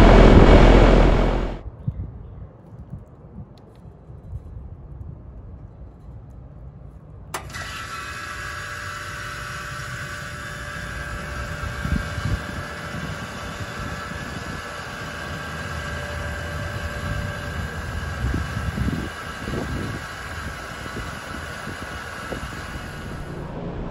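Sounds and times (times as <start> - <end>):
compressor and fan humming: 7.4 - 23.9.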